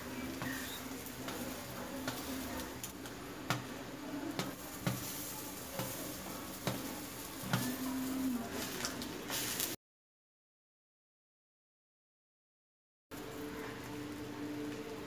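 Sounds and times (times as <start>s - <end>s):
omelette sizzling in a pan: 0.0s - 9.8s.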